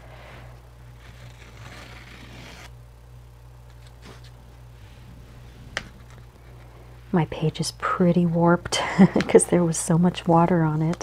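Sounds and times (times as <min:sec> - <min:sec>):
masking tape peeling: 0:01.0 - 0:02.7.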